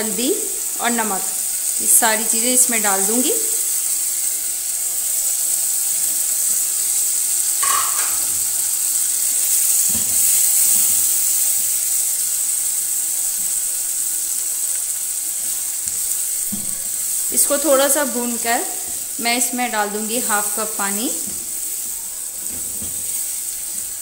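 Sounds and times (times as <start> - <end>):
tomatoes sizzling in hot oil: 0.0 - 24.0
spatula knocking against pot: 7.6 - 8.3.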